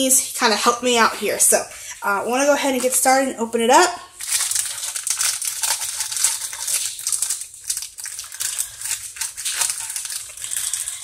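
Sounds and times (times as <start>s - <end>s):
plastic wrapper crinkling: 4.2s - 11.0s
scissors cutting plastic: 4.3s - 11.0s.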